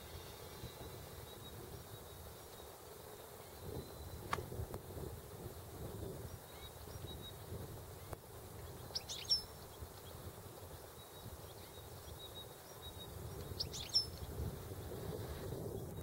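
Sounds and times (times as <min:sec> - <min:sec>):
bird chirping: 0:08.0 - 0:10.2, 0:10.8 - 0:14.4.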